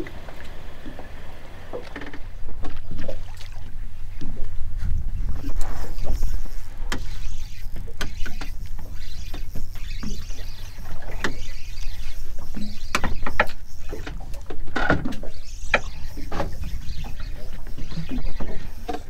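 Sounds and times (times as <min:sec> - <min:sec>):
sharp clicks and knocks: 0:12.5 - 0:16.6.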